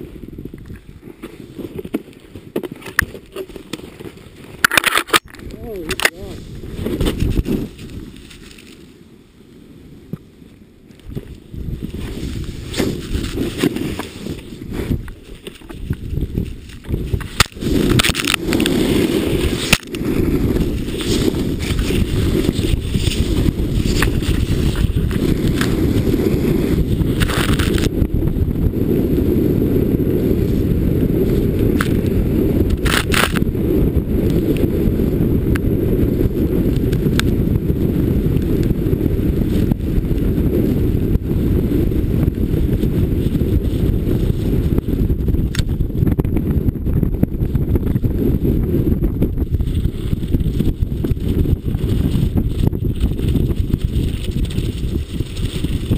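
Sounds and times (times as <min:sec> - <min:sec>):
wind rumbling on microphone: 0:00.0 - 0:55.9
snowboard hissing through snow: 0:17.6 - 0:27.2.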